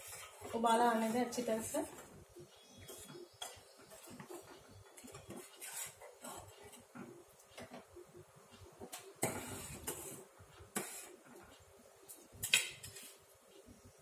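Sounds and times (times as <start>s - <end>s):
ladle scraping steel pot: 2.8s - 6.9s, 9.2s - 11.2s.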